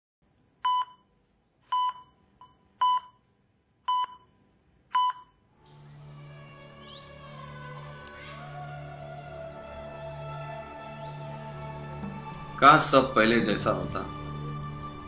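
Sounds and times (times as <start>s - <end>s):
heart monitor beeping: 0.6s - 1.1s, 1.7s - 3.2s, 3.9s - 5.4s
soft background music: 5.5s - 15.0s.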